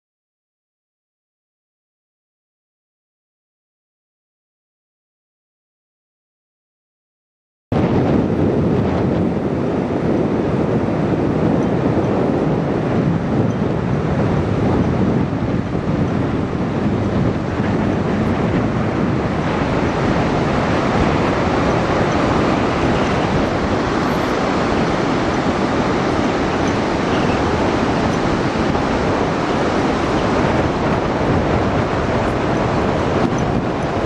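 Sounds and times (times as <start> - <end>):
wind buffeting microphone: 7.7 - 34.0
surf breaking on shore: 7.8 - 34.0.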